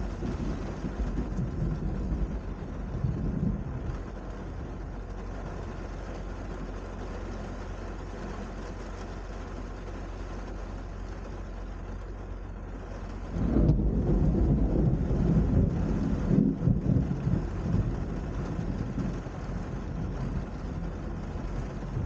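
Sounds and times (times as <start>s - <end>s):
thunder rumbling: 0.0s - 6.1s, 13.1s - 22.0s
low background rumble: 0.0s - 22.0s
steady rain: 0.0s - 22.0s.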